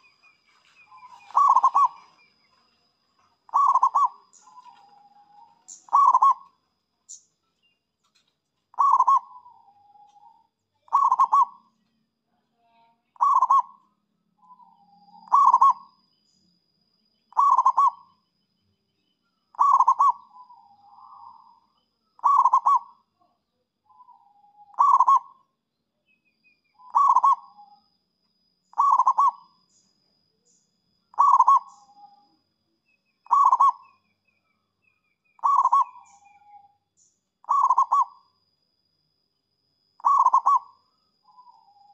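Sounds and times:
dove cooing: 0.8s - 2.3s, 3.5s - 6.5s, 8.7s - 11.6s, 13.2s - 13.8s, 15.2s - 15.9s, 17.3s - 18.0s, 19.6s - 21.6s, 22.2s - 22.9s, 23.9s - 25.4s, 26.8s - 27.7s, 28.7s - 29.5s, 31.1s - 32.2s, 33.3s - 33.9s, 35.4s - 36.6s, 37.4s - 38.2s, 40.0s - 41.9s.

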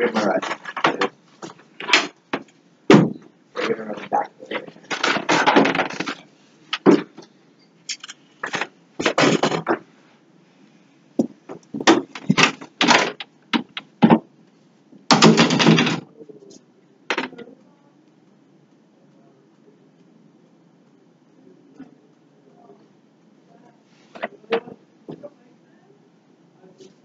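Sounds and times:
furniture scraping: 0.0s - 2.1s
clunks and knocks of objects: 0.0s - 7.3s, 8.4s - 9.8s, 11.2s - 14.3s, 15.1s - 16.1s.

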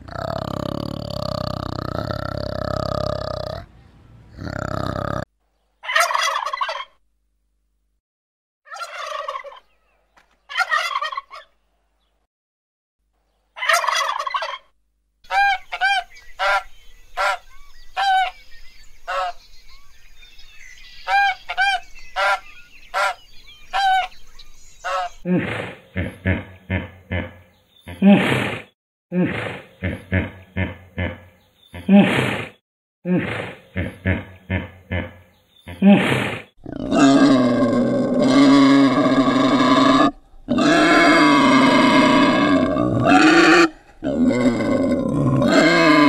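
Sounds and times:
geese honking: 5.8s - 6.9s, 8.7s - 9.6s, 10.5s - 11.5s, 13.6s - 14.7s, 15.3s - 17.4s, 18.0s - 18.4s, 19.1s - 19.4s, 21.1s - 23.2s, 23.8s - 24.1s
turkeys gobbling: 5.8s - 7.0s, 8.7s - 9.8s, 10.5s - 11.6s, 13.6s - 14.7s, 15.3s - 18.4s, 19.1s - 19.4s, 21.1s - 23.2s, 23.8s - 24.1s.

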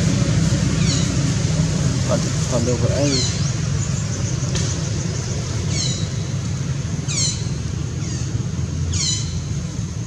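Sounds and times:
high falling chirping call: 3.0s - 6.4s.

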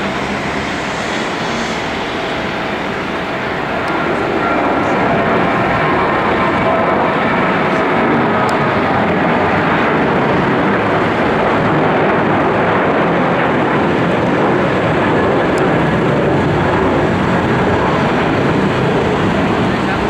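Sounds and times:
jet engine roar: 0.0s - 20.0s.

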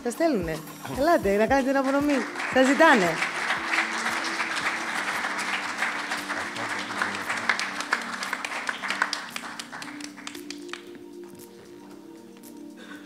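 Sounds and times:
audience applauding: 1.6s - 11.0s.

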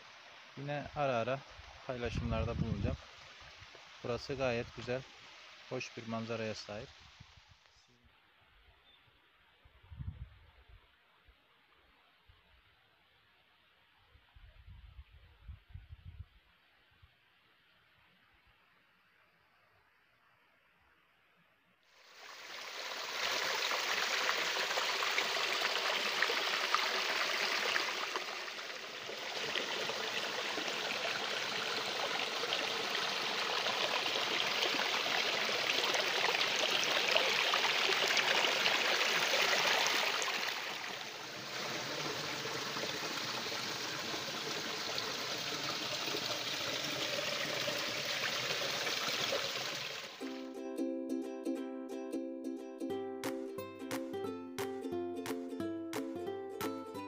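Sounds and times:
creek water splashing over rocks: 22.0s - 50.3s.

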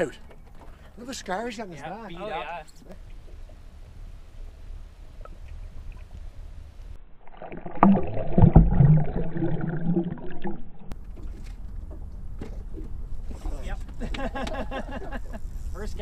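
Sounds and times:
muffled underwater sloshing: 2.9s - 13.6s.

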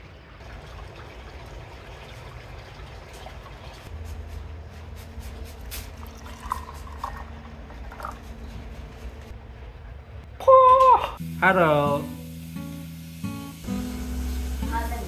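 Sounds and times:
water trickling and running: 0.0s - 3.9s, 5.8s - 8.4s, 11.6s - 15.0s.

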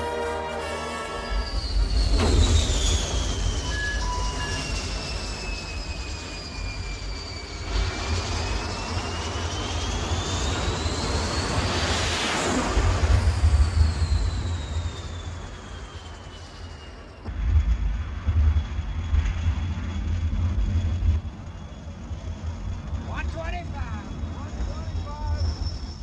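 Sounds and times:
jet engine turbine whine: 0.0s - 26.0s
deep rumble: 17.2s - 26.0s.

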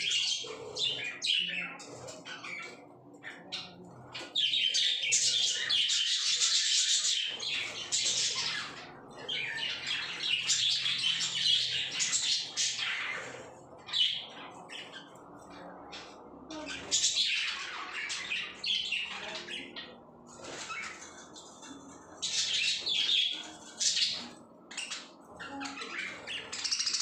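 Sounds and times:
budgerigars chattering: 0.0s - 15.2s, 21.7s - 27.0s.

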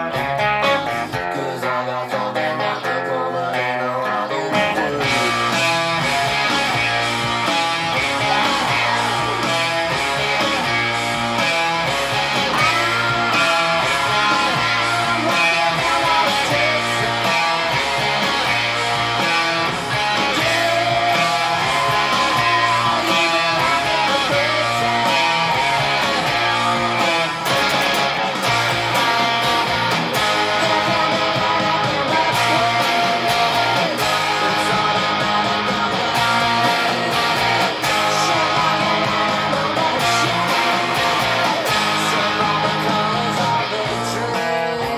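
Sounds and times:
electric guitar: 0.0s - 44.9s
rock band playing: 0.0s - 44.9s.

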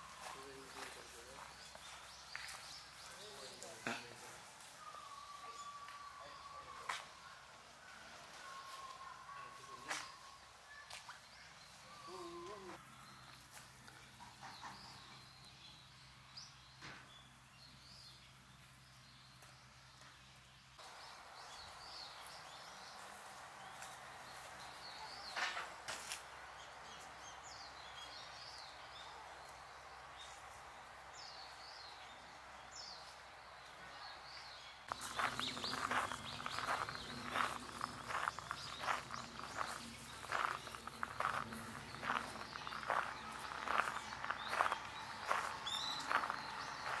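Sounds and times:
steady background noise: 20.8s - 47.0s
bird chirps: 34.3s - 47.0s
footsteps: 34.9s - 47.0s.

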